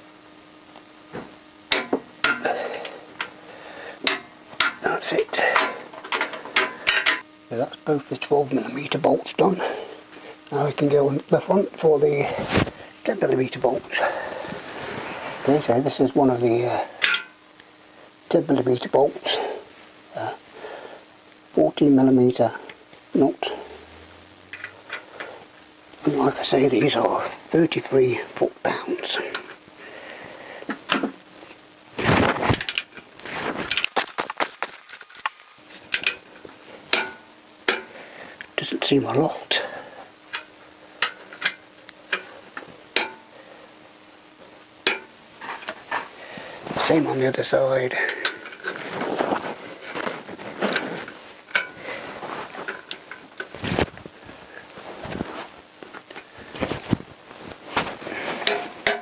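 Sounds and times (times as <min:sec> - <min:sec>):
handling noise: 0:33.8 - 0:35.6
ratchet wrench clicking: 0:33.8 - 0:35.6.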